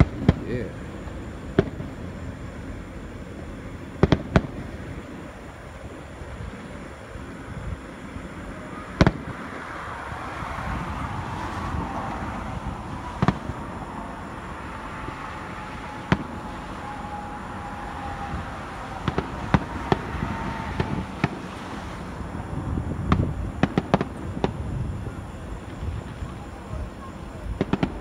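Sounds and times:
crackling firework pops: 0:00.0 - 0:00.6, 0:01.5 - 0:02.0, 0:04.0 - 0:04.8, 0:09.0 - 0:09.4, 0:13.1 - 0:13.6, 0:19.0 - 0:21.6, 0:23.0 - 0:24.7, 0:27.5 - 0:28.0
distant fireworks bangs: 0:00.0 - 0:28.0.

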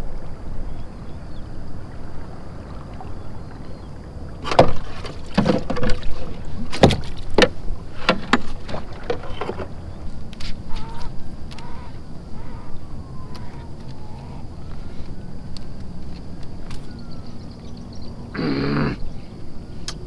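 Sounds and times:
low water wash: 0:00.0 - 0:18.3
knocks and clunks on kayak hull: 0:04.4 - 0:09.8.

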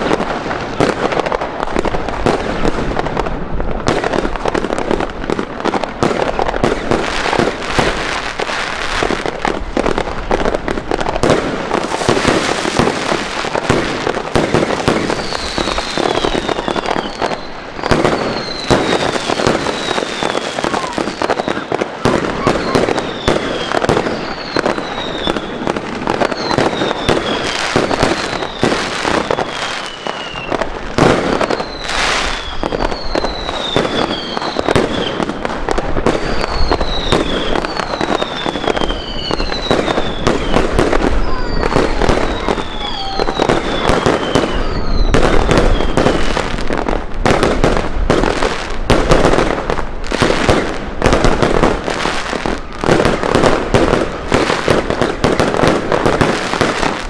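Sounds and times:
fireworks bangs and crackling: 0:00.0 - 0:57.0
falling firework whistles: 0:11.2 - 0:46.7.

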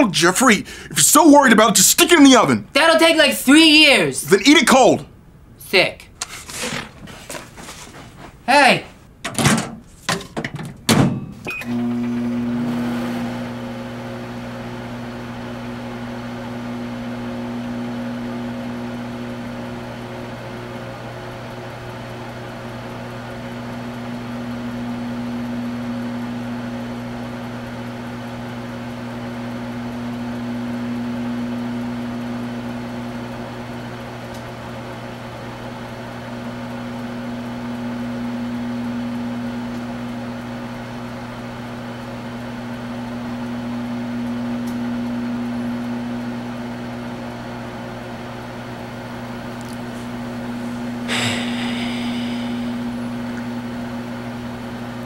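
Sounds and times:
microwave oven humming: 0:00.0 - 0:55.0.

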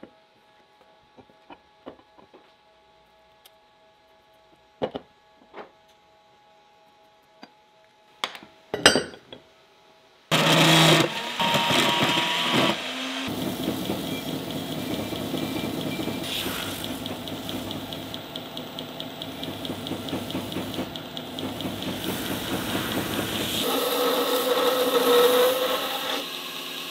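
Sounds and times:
belt grinder running: 0:10.3 - 0:26.9.

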